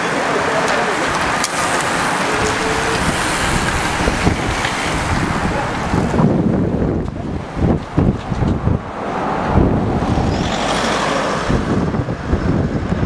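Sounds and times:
wind buffeting microphone: 0.9 - 13.0
bicycle tyres hissing on tarmac: 1.4 - 6.2.

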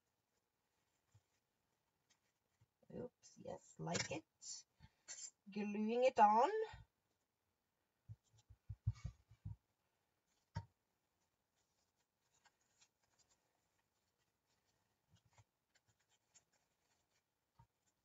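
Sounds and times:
paper rustling: 11.5 - 18.0.

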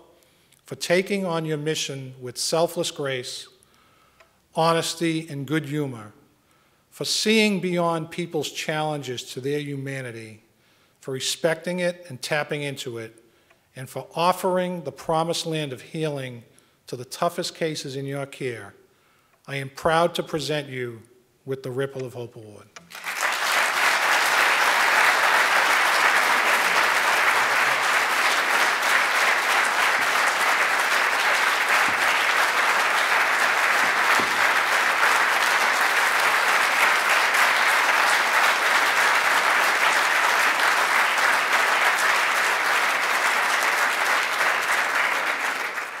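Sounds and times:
audience applauding: 22.9 - 46.0.

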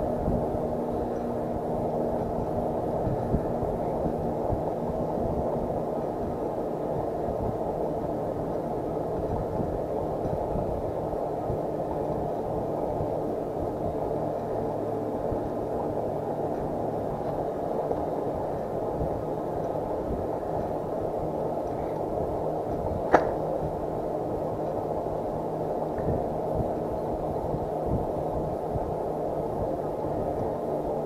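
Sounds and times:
faint hum: 0.0 - 31.0
low rush of riding noise: 0.0 - 31.0
sharp click: 23.1 - 23.4.

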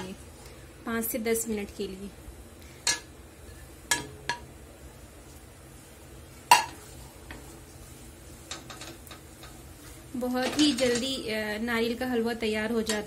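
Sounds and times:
utensils clinking on steel pan: 10.3 - 11.2.

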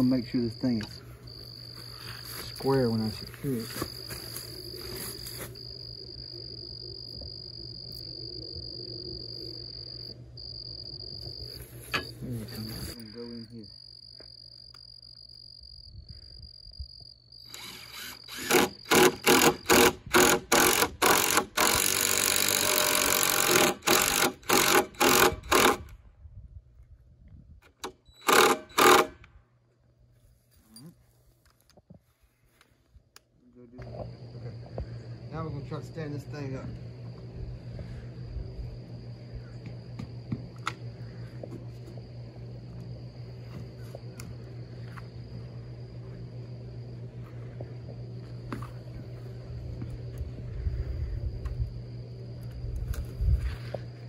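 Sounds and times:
crickets chirping: 0.0 - 54.0
drill driving screws into wood: 17.5 - 26.0, 27.7 - 29.2.

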